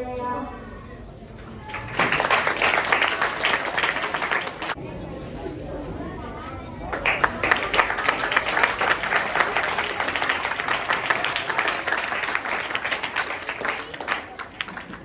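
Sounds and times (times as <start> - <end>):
audience applauding: 1.6 - 4.8, 6.9 - 15.0.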